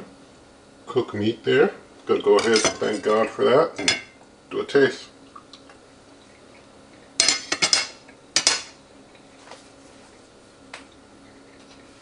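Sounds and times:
fork clinking on ceramic plate: 0:07.2 - 0:08.7.

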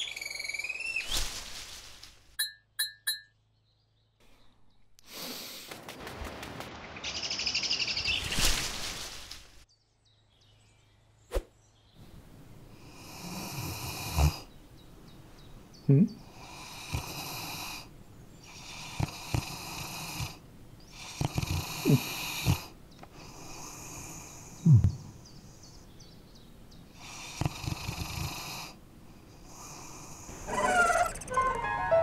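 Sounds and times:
dog snoring: 0:13.1 - 0:14.5, 0:16.4 - 0:17.8, 0:18.6 - 0:20.4, 0:21.0 - 0:22.7, 0:27.0 - 0:28.8.

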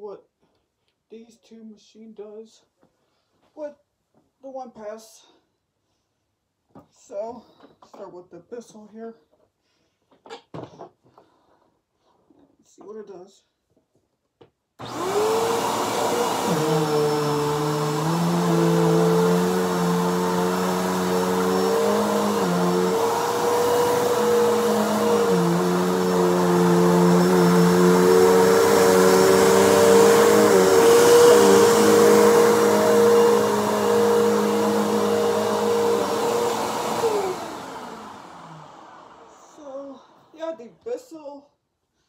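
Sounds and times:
vacuum cleaner motor hum: 0:14.8 - 0:40.3
vacuum cleaner winding down: 0:14.8 - 0:40.4.

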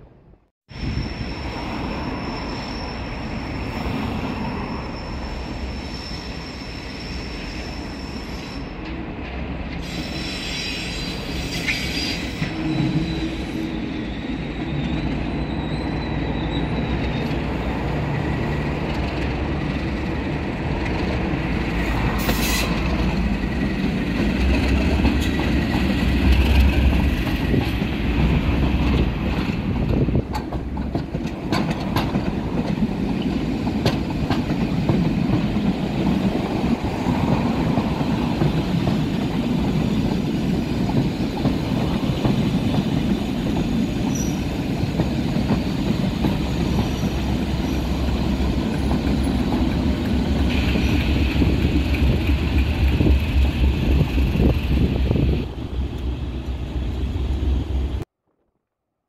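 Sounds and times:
diesel locomotive engine rumble: 0:00.1 - 0:58.1
high wheel squeal: 0:00.7 - 0:08.9, 0:09.8 - 0:17.8, 0:42.6 - 0:48.5
wheels clicking over rail joints: 0:22.2 - 0:39.9.

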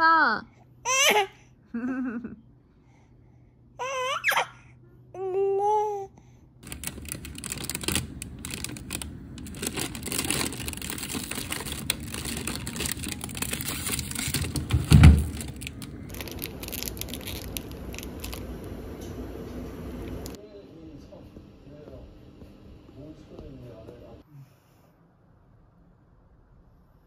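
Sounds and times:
wrapper being torn open: 0:06.6 - 0:18.7
plastic wrappers crinkling: 0:06.6 - 0:18.9.

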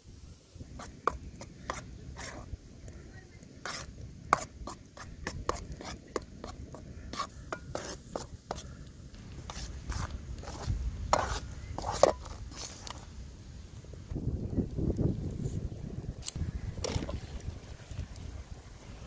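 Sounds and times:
metal ladle scraping a wok: 0:00.8 - 0:02.5, 0:03.6 - 0:08.7, 0:09.5 - 0:13.0.

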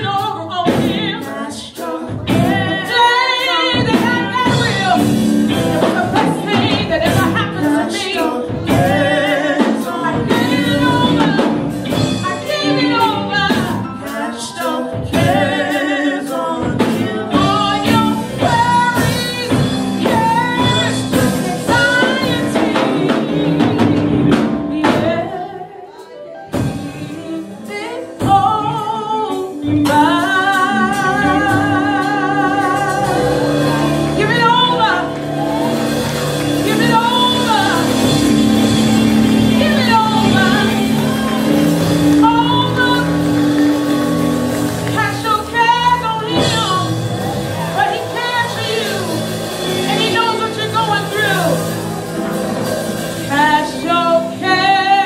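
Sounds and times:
band playing: 0:00.0 - 0:55.0
gospel singers with vibrato: 0:00.0 - 0:55.0
drum strikes: 0:29.8 - 0:54.5.

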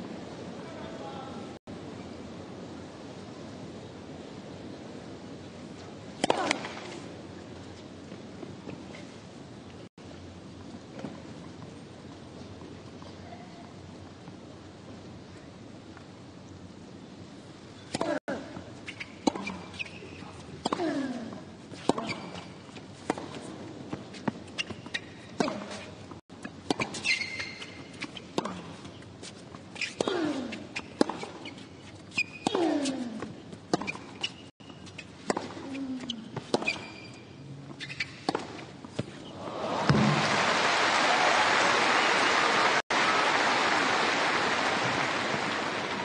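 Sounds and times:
racket hitting tennis ball: 0:06.2 - 0:07.0, 0:18.9 - 0:37.1, 0:37.9 - 0:40.3
crowd applause: 0:39.4 - 0:46.0.

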